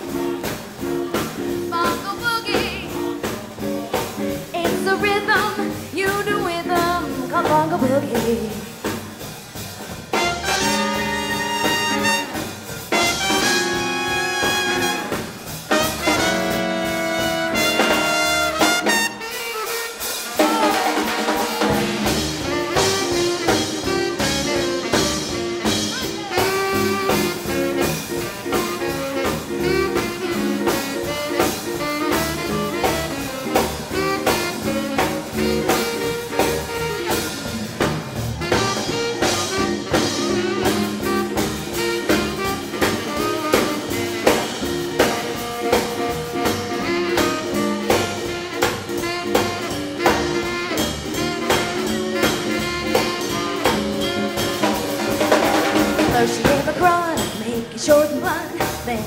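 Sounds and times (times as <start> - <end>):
drum kit beat: 0.0 - 59.0
saxophone and brass: 0.0 - 59.0
swing band playing: 0.0 - 59.0.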